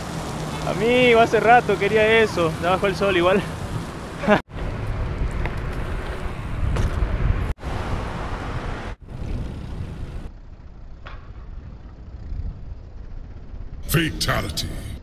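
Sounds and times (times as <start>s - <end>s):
bicycle rumbling on paved path: 0.0s - 13.8s
wind buffeting microphone: 4.6s - 10.6s.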